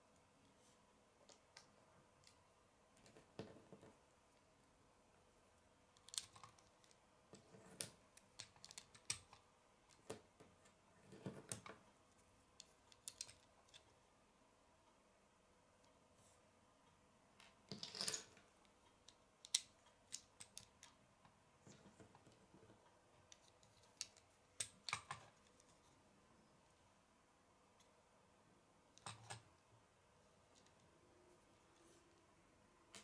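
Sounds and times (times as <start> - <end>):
plastic bricks clicking together: 6.0 - 7.0, 7.7 - 10.2, 12.6 - 13.8, 19.1 - 21.0.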